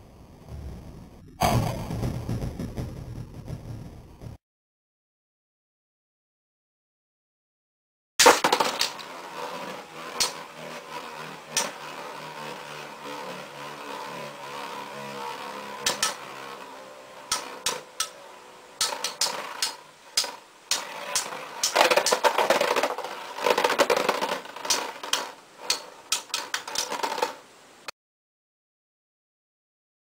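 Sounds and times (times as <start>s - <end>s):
spinning tops clacking together: 8.2s - 27.5s
spinning tops whirring: 8.2s - 27.9s.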